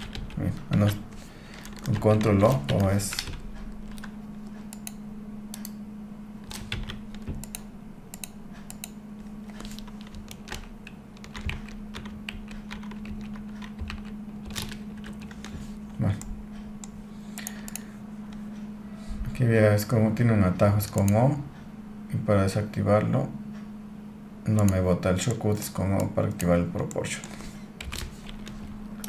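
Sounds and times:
keyboard and mouse clicks: 0.0 - 5.8, 6.4 - 15.6, 24.6 - 29.0
steady low hum: 0.0 - 29.0.

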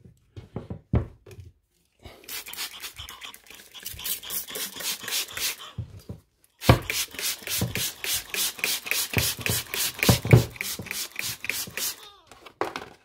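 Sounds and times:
spray bottle squirting: 2.2 - 5.7, 6.6 - 12.1.

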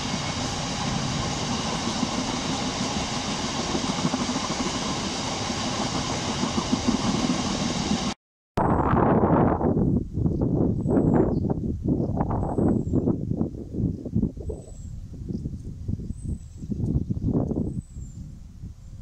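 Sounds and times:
train wheels rumbling on rails: 0.0 - 8.2.

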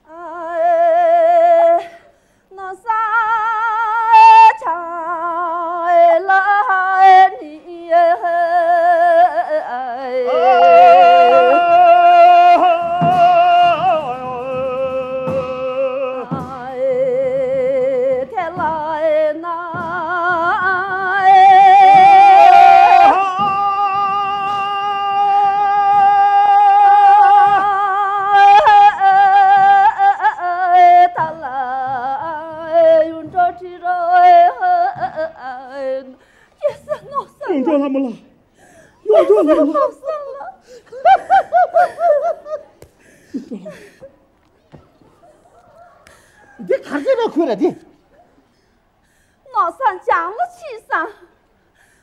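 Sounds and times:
person singing with music: 7.0 - 36.2.

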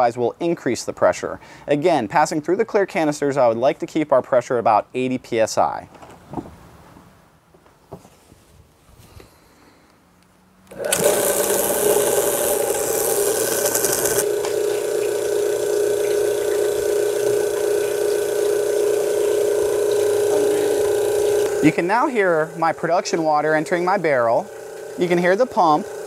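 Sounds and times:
pump humming with whine: 10.6 - 26.0
pump motor hissing: 10.7 - 26.0.

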